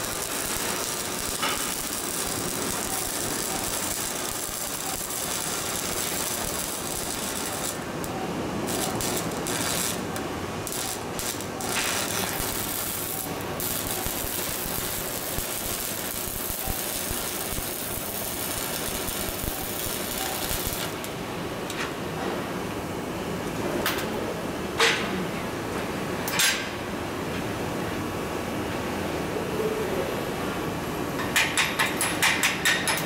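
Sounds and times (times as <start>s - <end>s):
welding arc crackling and hissing: 0.0s - 21.2s.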